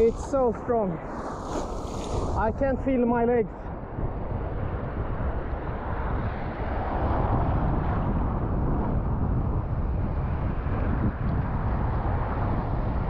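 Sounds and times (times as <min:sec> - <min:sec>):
waves breaking in shallow water: 0:00.0 - 0:09.2
wind buffeting microphone: 0:00.0 - 0:13.0.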